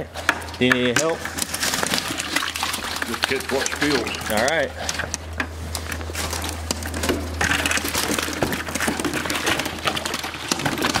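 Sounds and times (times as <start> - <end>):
steady low hum: 0.0 - 11.0
fish flopping: 1.2 - 11.0
water splashing and dripping: 1.3 - 4.4.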